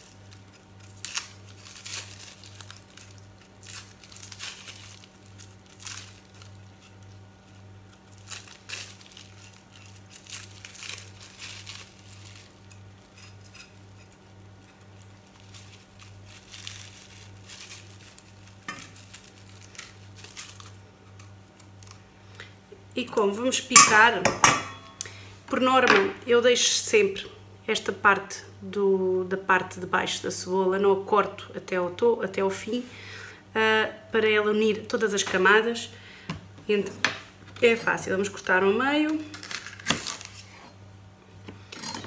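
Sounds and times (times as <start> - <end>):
onion skin crackling: 0.0 - 25.1, 37.6 - 40.9.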